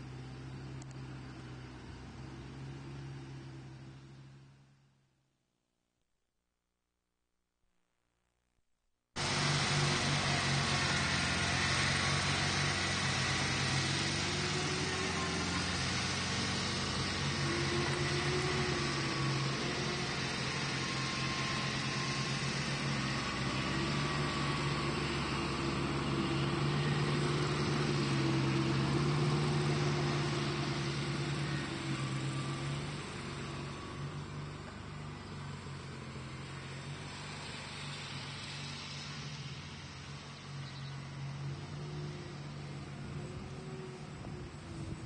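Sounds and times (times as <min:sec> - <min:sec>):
engine idling: 0:09.2 - 0:45.0.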